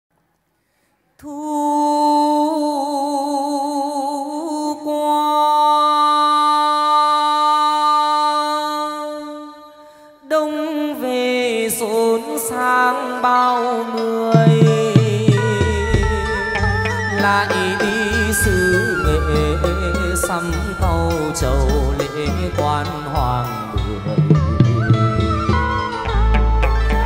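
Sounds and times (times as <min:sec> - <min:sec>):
man singing: 0:01.2 - 0:27.0
plucked lute notes: 0:14.4 - 0:27.0.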